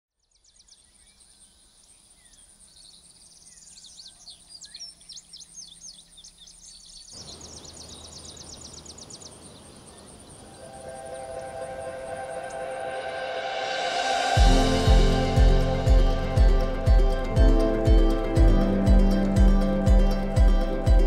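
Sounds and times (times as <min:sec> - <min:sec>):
songbirds calling and trilling: 0:00.2 - 0:12.9
steady rushing noise: 0:09.4 - 0:21.0
thin high-pitched tone: 0:10.6 - 0:21.0.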